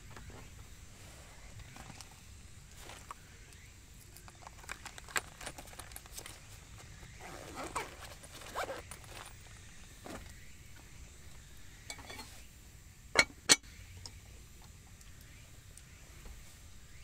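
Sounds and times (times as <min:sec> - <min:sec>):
metal lid clinking on pot: 0:11.9 - 0:12.3.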